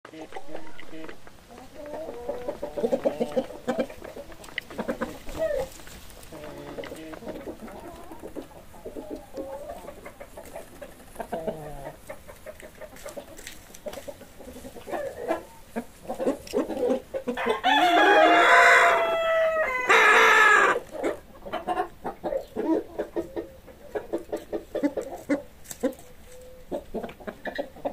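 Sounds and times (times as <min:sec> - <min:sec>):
chickens clucking: 0:00.1 - 0:27.9
rooster crowing: 0:17.4 - 0:20.8.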